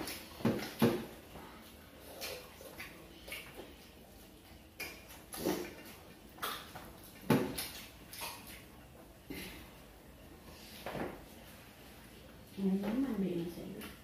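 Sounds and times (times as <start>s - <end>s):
eating noises: 0.0s - 9.6s.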